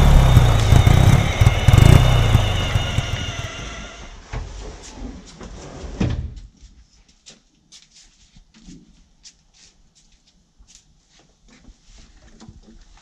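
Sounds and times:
loud rushing noise: 0:00.0 - 0:04.0.

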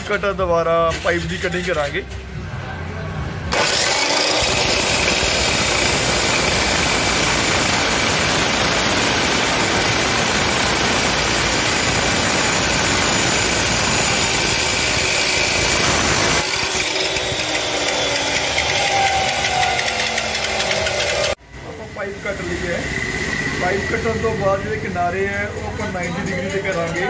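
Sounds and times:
cut-off saw grinding steel pipe: 0:03.5 - 0:21.4.

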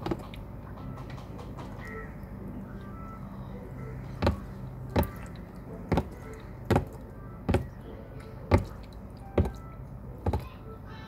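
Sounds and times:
turtle stroke taps in tub: 0:04.2 - 0:07.7.

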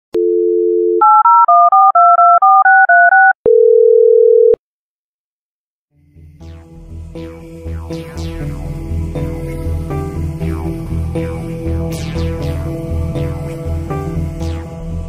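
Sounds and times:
telephone dial tone: 0:00.2 - 0:04.6
touch-tone dialing beeps: 0:00.2 - 0:04.6.

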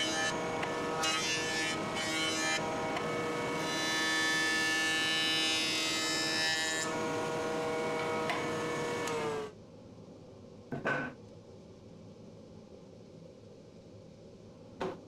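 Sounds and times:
jointer motor whine: 0:00.0 - 0:09.5.

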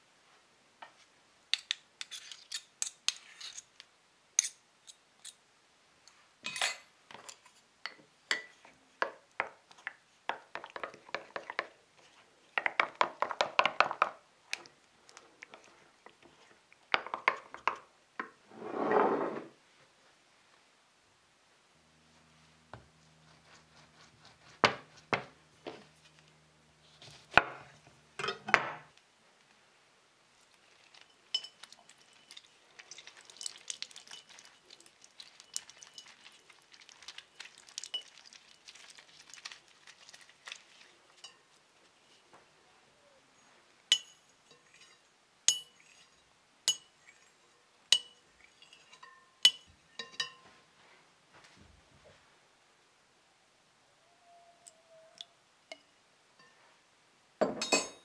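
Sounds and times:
knife cutting lemon: 0:23.1 - 0:25.3
wet squishing of reamer: 0:30.5 - 0:41.2
juice dripping: 0:30.5 - 0:41.4
clinks on glass bowl: 0:31.3 - 0:32.5, 0:43.9 - 0:47.0, 0:47.9 - 0:50.5, 0:57.4 - 0:58.0.

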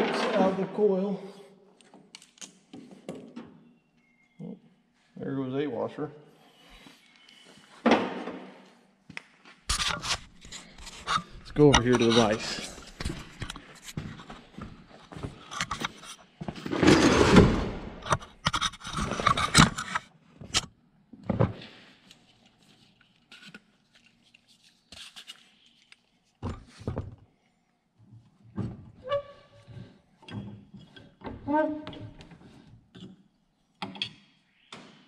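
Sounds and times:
camera rubbing and bumping: 0:09.7 - 0:14.5, 0:18.0 - 0:20.6.

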